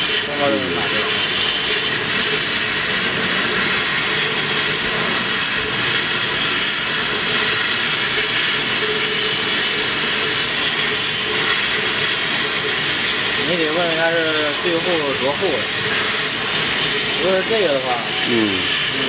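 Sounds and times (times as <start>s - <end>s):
air jet hissing: 0.0s - 19.0s.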